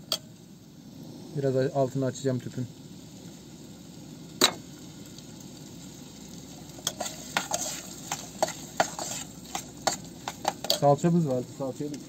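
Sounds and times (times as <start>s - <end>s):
onions and potatoes sizzling: 0.0s - 12.0s
metal spoon scraping a pot: 6.8s - 10.9s.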